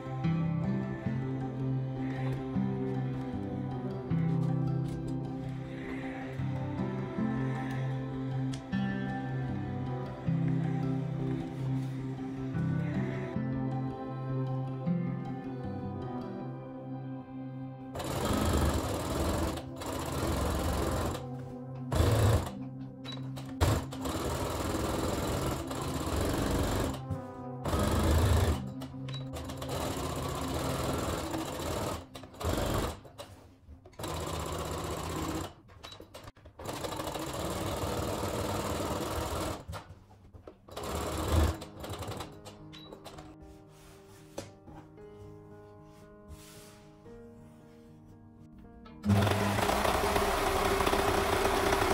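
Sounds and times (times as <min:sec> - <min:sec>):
sewing machine stitching: 0:18.0 - 0:39.9, 0:40.7 - 0:43.4, 0:49.0 - 0:51.9.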